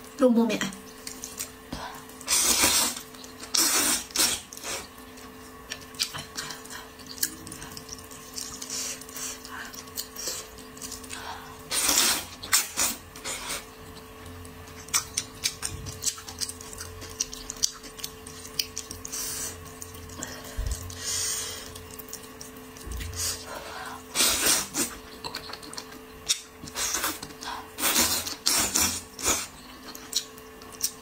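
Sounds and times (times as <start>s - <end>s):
faint steady hum: 0.0s - 31.0s
wet chewing clicks: 0.9s - 21.0s, 21.6s - 23.4s, 24.4s - 31.0s
person slurping noodles: 2.2s - 4.9s, 11.7s - 13.7s, 24.1s - 24.9s, 27.8s - 29.5s.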